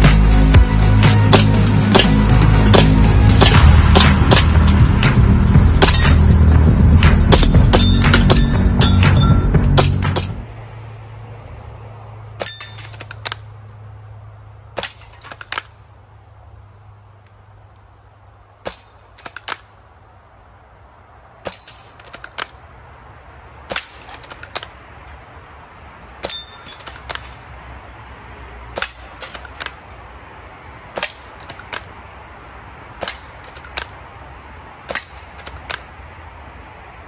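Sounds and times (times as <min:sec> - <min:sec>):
air rifle firing: 0:01.3 - 0:05.2.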